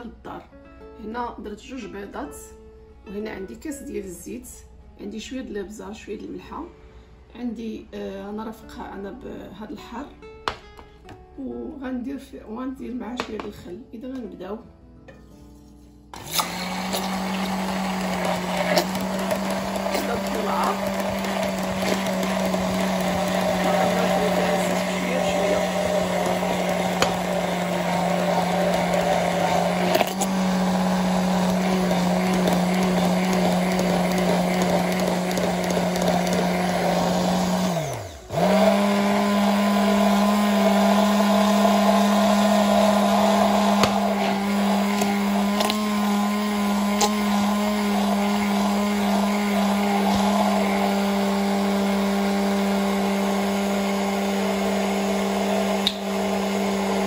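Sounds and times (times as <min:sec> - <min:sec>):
immersion blender whirring: 0:16.1 - 0:57.0.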